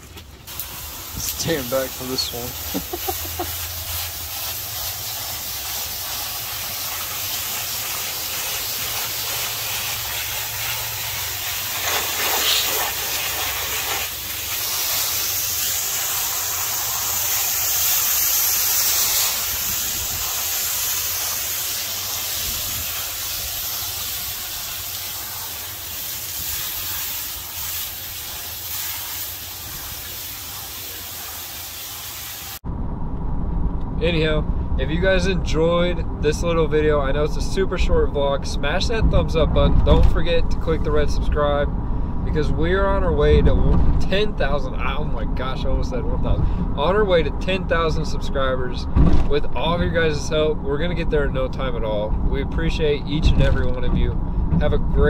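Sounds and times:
hose spray hissing: 0:00.5 - 0:32.6.

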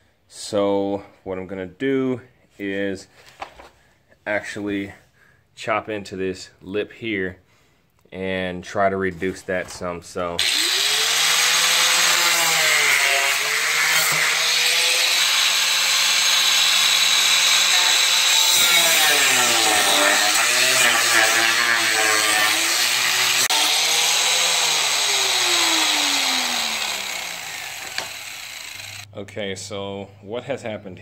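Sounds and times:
angle grinder cutting plastic: 0:10.4 - 0:29.1
grinder spinning down: 0:10.4 - 0:29.1.

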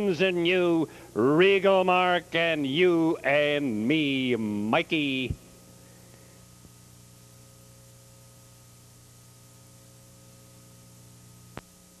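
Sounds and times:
low electrical hum: 0:00.0 - 0:12.0
faint click: 0:11.5 - 0:11.7.

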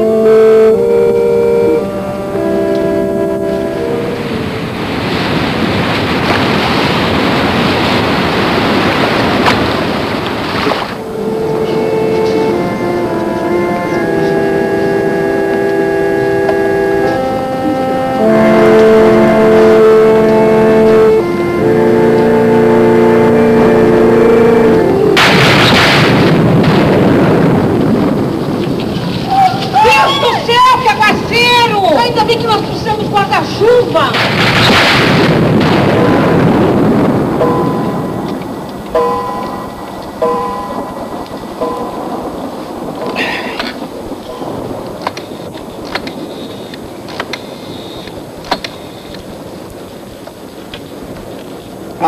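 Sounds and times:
organ playing slow chords: 0:00.0 - 0:05.9, 0:11.0 - 0:28.2, 0:35.1 - 0:48.1
thunderclap rumbling: 0:00.0 - 0:52.0
wind: 0:00.0 - 0:52.0
sea waves washing on shore: 0:02.0 - 0:52.0.

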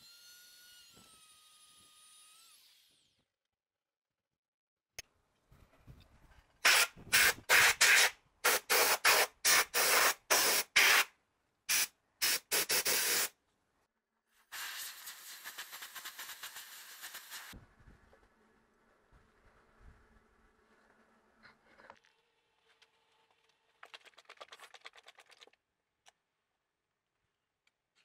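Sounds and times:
spray hisses: 0:14.5 - 0:17.6.

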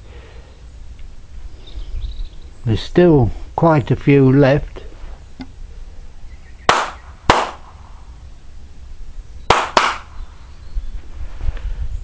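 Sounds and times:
hand claps: 0:06.7 - 0:07.6, 0:09.5 - 0:10.1.

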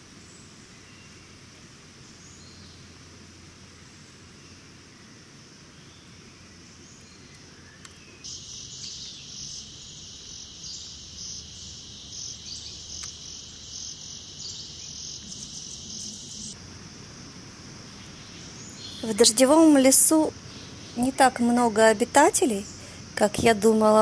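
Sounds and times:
faint high-pitched insect drone: 0:00.0 - 0:24.0
pulsing shrill insect chorus: 0:08.2 - 0:17.0.

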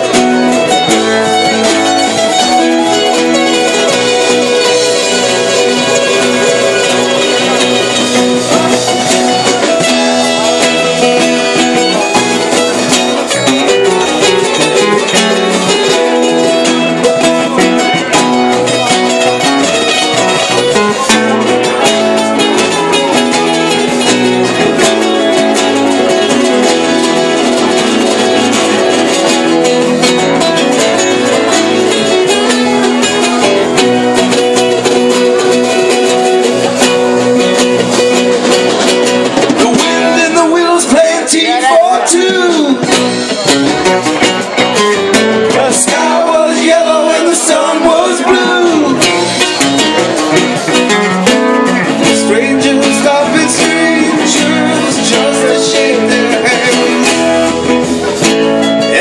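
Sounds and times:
drum kit: 0:00.0 - 0:59.0
electric guitar: 0:00.0 - 0:59.0
live band playing: 0:00.0 - 0:59.0.

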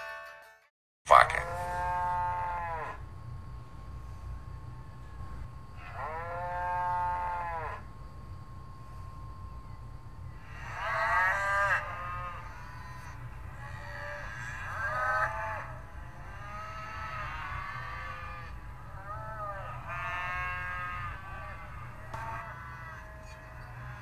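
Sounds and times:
cattle mooing: 0:01.1 - 0:03.0, 0:05.8 - 0:07.8, 0:10.5 - 0:24.0.

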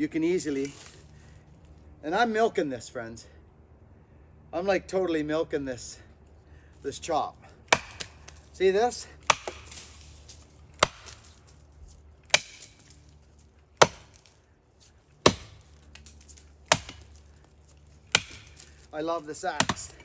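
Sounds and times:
axe chopping into tree trunk: 0:07.7 - 0:11.4, 0:12.2 - 0:13.1, 0:13.8 - 0:14.4, 0:15.2 - 0:20.0.

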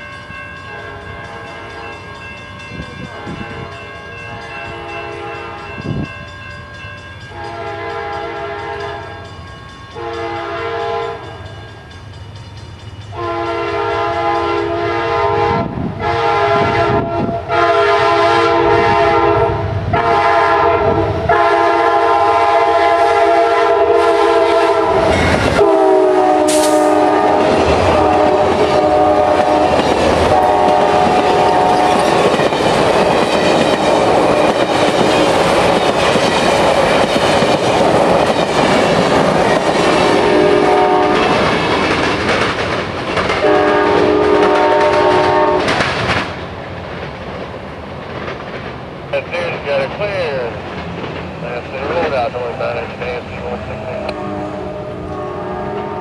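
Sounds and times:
train air horn blasts: 0:03.1 - 0:05.7, 0:07.3 - 0:09.2, 0:10.0 - 0:11.3, 0:13.2 - 0:32.0, 0:40.0 - 0:41.4, 0:43.4 - 0:45.8, 0:51.9 - 0:56.0
train wheels clattering over rails: 0:26.4 - 0:52.4.

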